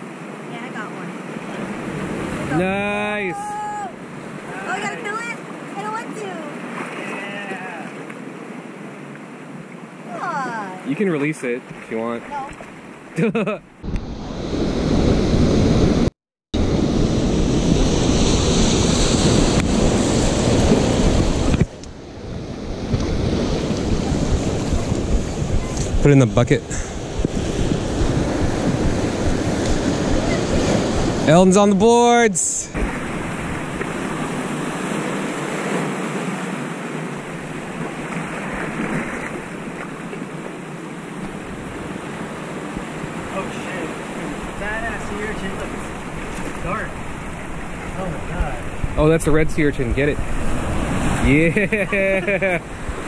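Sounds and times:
surf breaking over rocks: 0:00.0 - 0:13.2, 0:13.8 - 0:53.0
wind buffeting microphone: 0:13.8 - 0:31.9, 0:37.0 - 0:53.0.

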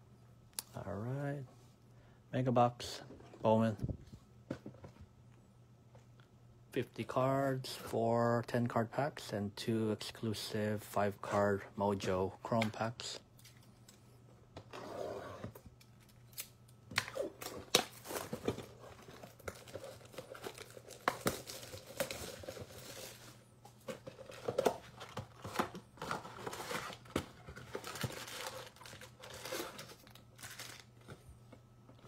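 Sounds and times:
packaging tearing and crinkling: 0:16.3 - 0:23.2, 0:24.2 - 0:30.9.

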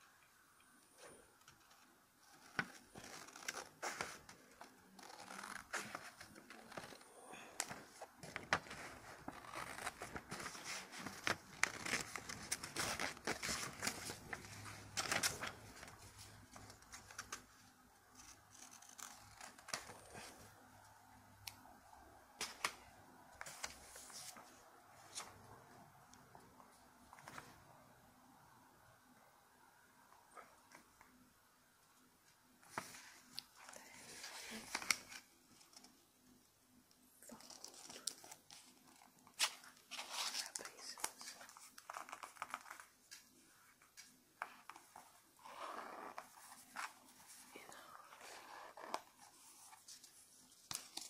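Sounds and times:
paper rustling: 0:01.4 - 0:20.4, 0:22.4 - 0:25.6, 0:32.6 - 0:36.0, 0:37.3 - 0:51.0.

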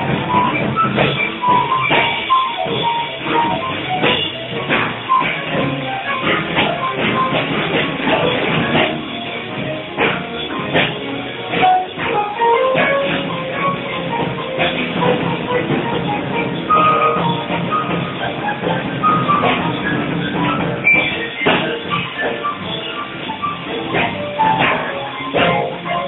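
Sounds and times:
drum kit played busily: 0:00.0 - 0:26.0
short piano notes: 0:00.0 - 0:26.0.

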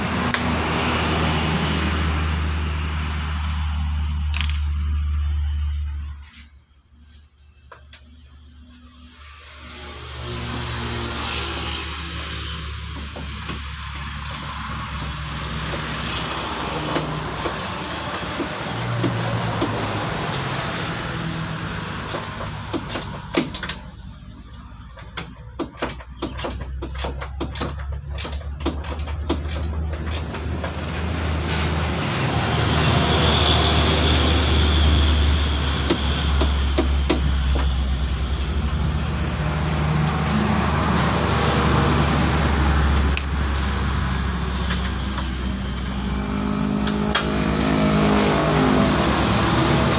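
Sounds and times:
engine traffic rumble: 0:00.0 - 0:49.9
sharp clicks and knocks on fittings: 0:12.8 - 0:19.9, 0:22.0 - 0:31.0, 0:35.3 - 0:39.3.

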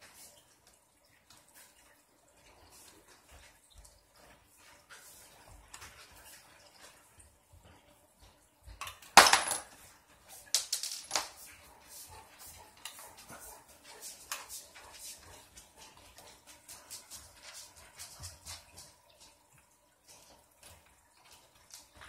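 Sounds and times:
metal hardware clattering on wooden floor: 0:08.8 - 0:09.8, 0:10.6 - 0:11.4.

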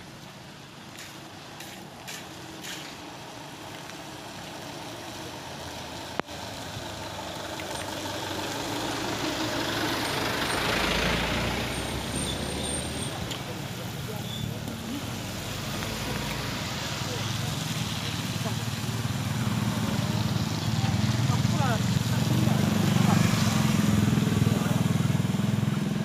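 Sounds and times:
truck passing on wet road: 0:00.0 - 0:26.0.

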